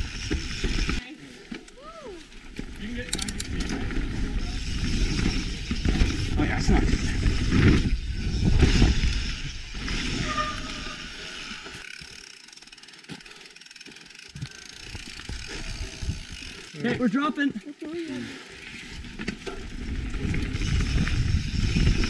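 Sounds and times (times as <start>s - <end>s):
bike rattling over rocky trail: 0.0s - 1.1s, 2.4s - 10.3s, 11.4s - 18.0s, 18.9s - 22.0s
bike clicks: 2.5s - 10.0s, 11.4s - 16.9s.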